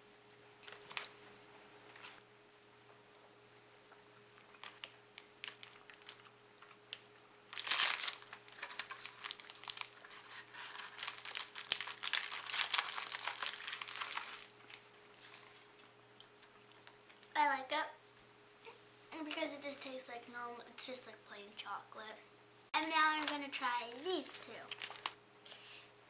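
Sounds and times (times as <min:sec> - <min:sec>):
snack wrapper crinkling: 0:00.6 - 0:01.2, 0:04.4 - 0:17.3, 0:24.3 - 0:25.2.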